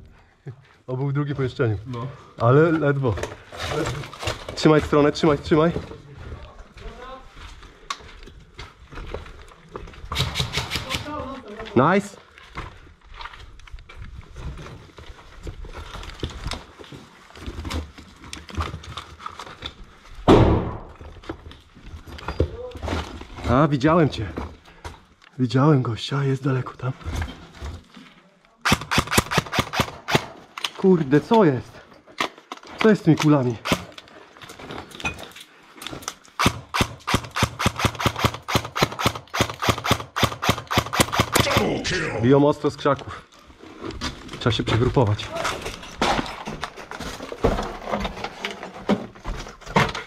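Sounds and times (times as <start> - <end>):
footsteps on rubble and concrete: 2.4 - 10.1, 11.6 - 20.2, 20.9 - 25.3, 30.4 - 36.4, 42.6 - 50.0
airsoft gunfire: 10.1 - 11.1, 28.7 - 30.3, 36.4 - 41.8
loud thump: 20.3 - 21.0.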